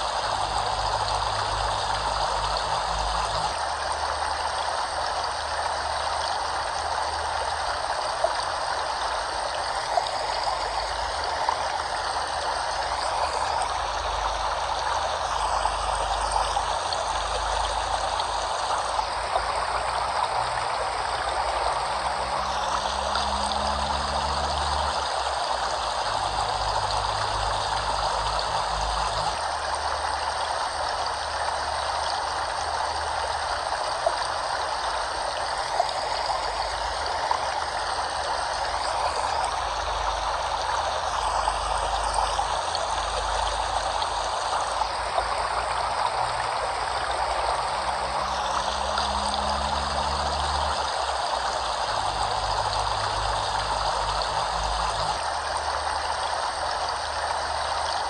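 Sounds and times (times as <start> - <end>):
rushing water: 0.0 - 58.0.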